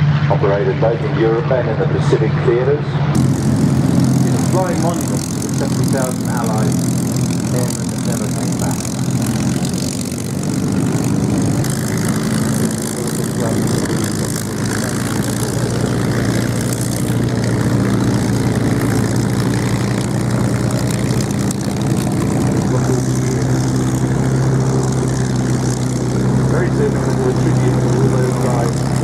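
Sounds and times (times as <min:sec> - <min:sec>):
propeller engines droning: 0:00.0 - 0:29.0.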